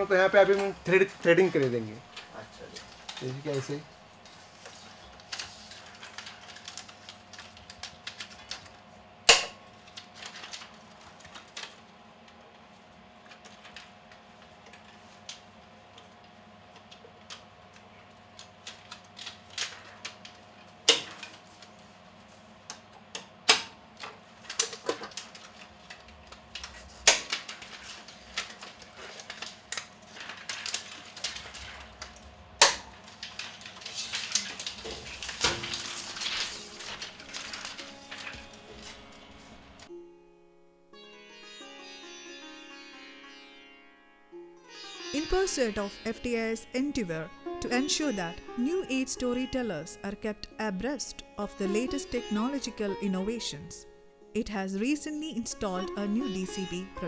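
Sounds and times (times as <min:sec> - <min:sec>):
projector parts clicking and snapping: 0:16.7 - 0:21.7, 0:22.7 - 0:39.1.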